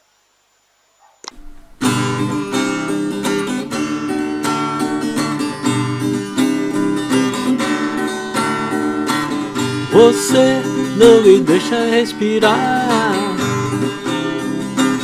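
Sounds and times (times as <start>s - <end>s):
acoustic guitar strumming: 1.3s - 15.0s.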